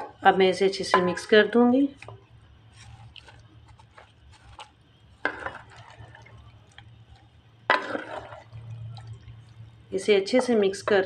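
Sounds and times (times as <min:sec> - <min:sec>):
wooden spoon scraping clay pot: 0:02.6 - 0:06.3, 0:07.7 - 0:08.6.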